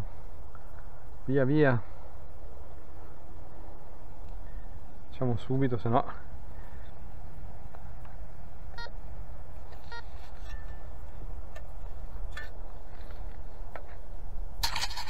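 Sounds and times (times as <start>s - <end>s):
metal detector beeps: 9.8s - 10.9s.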